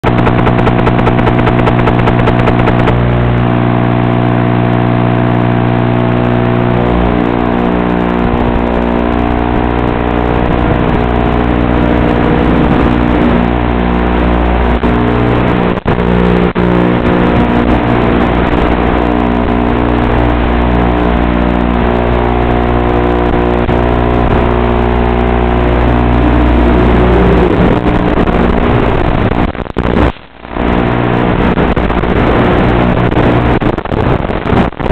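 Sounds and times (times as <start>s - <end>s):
drone motors whining: 0.0s - 3.2s, 23.4s - 29.1s.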